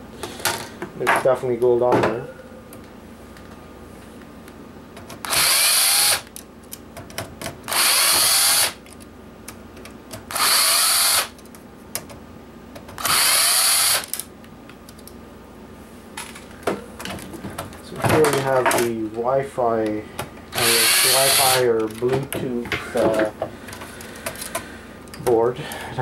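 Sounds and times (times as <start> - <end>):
cordless drill motor running: 5.2 - 6.3, 7.7 - 8.8, 10.3 - 11.4, 13.0 - 14.2, 20.5 - 21.6.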